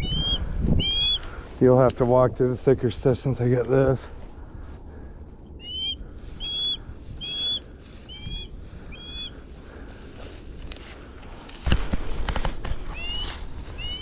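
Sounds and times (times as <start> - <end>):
hawk calling: 0.0 - 1.4, 5.4 - 9.9, 12.8 - 14.0
low steady rumble: 0.0 - 12.2.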